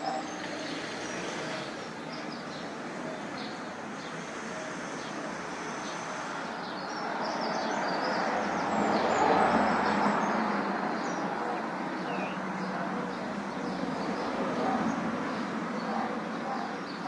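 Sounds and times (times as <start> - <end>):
city traffic noise: 0.0 - 17.0.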